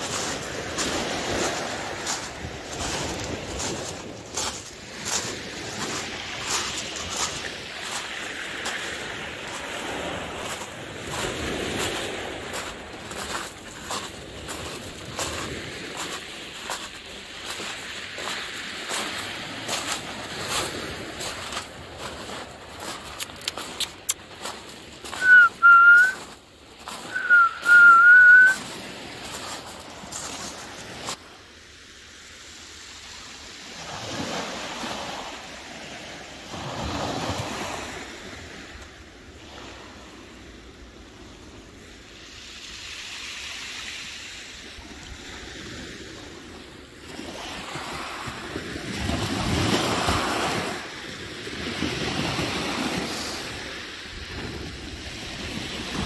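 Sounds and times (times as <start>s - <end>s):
sea surf washing in: 0.0s - 56.0s
loud whistles: 25.2s - 26.2s, 27.1s - 28.6s.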